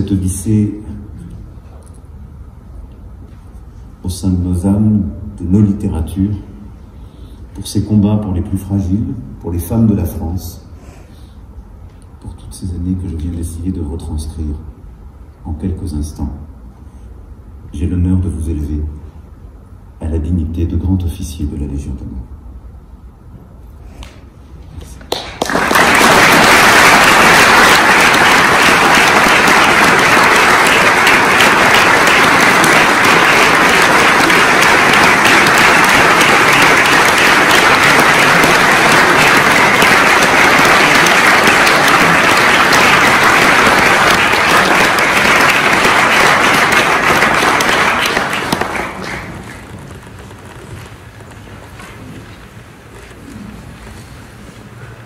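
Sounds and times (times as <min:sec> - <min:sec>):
audience applauding: 0:25.1 - 0:52.0.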